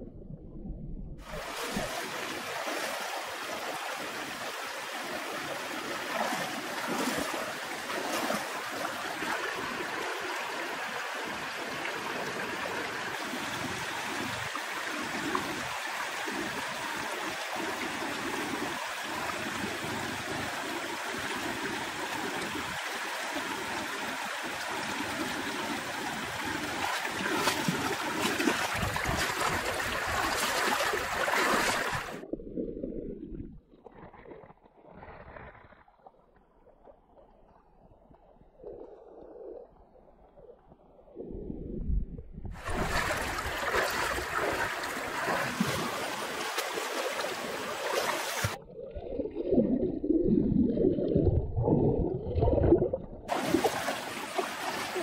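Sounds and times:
legs wading through water: 0:01.2 - 0:12.4, 0:25.8 - 0:33.0, 0:42.5 - 0:49.3, 0:51.1 - 0:55.0
stream running over rocks: 0:01.2 - 0:39.6, 0:42.5 - 0:49.7, 0:52.4 - 0:55.0.

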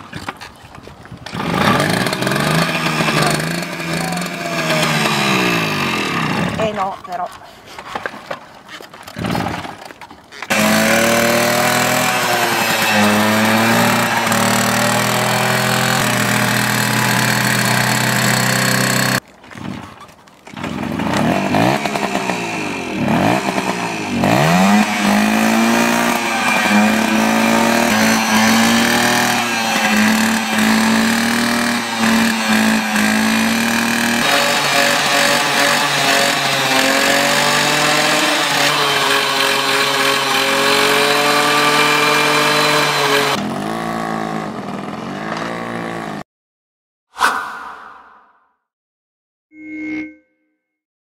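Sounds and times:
moped engine revving: 0:01.3 - 0:06.8, 0:10.5 - 0:19.2, 0:20.6 - 0:46.2.

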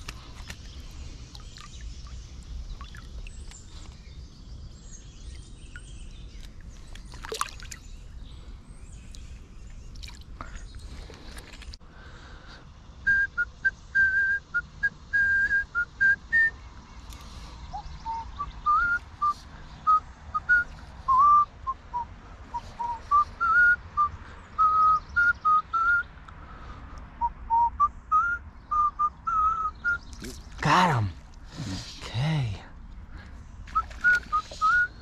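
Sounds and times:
person whistling a tune: 0:13.1 - 0:16.5, 0:17.8 - 0:26.0, 0:27.5 - 0:30.0, 0:33.8 - 0:35.0.

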